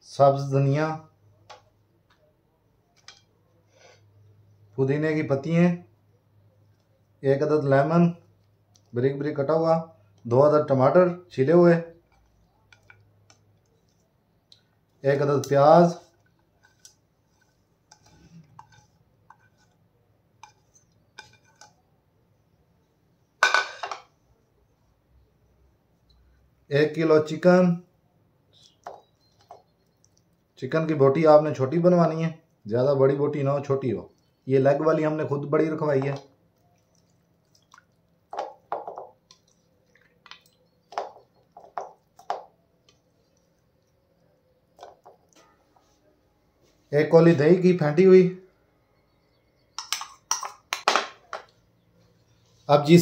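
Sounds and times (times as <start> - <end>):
plate clattering on stone counter: 23.4 - 24.1
plate clinking against bowl: 23.4 - 24.1.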